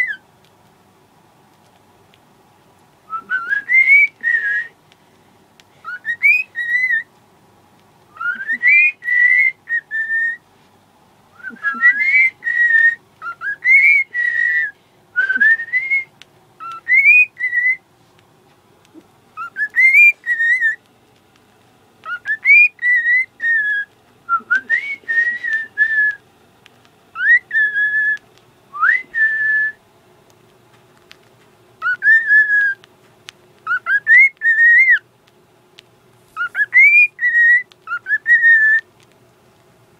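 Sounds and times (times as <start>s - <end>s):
cockatiel whistling: 0.0s - 0.2s, 3.1s - 4.8s, 5.8s - 7.1s, 8.1s - 10.4s, 11.3s - 17.8s, 19.3s - 20.8s, 22.0s - 26.2s, 27.1s - 29.8s, 31.8s - 32.9s, 33.6s - 35.1s, 36.4s - 38.9s.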